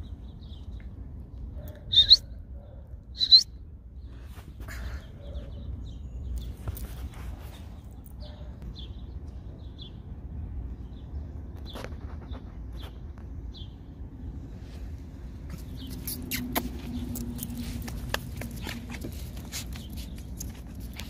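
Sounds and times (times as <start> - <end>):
high bird chirps: 1.8 - 2.4, 3.1 - 3.6
light scuffs: 6.4 - 8.1.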